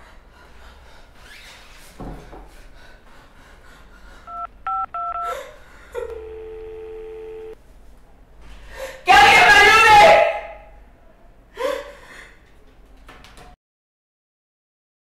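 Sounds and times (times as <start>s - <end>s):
phone keypad beeps: 4.3s - 5.3s, 6.1s - 7.6s
steady phone line tone: 4.3s - 5.3s, 6.0s - 7.6s.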